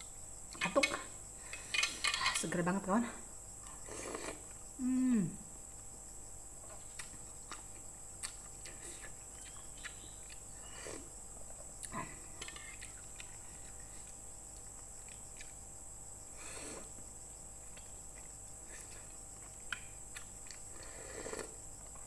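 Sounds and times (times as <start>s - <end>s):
slurping noodles and soup: 3.8s - 4.5s, 10.6s - 11.1s, 16.4s - 17.0s, 20.7s - 21.6s
soft chewing: 6.6s - 15.7s, 16.4s - 22.0s.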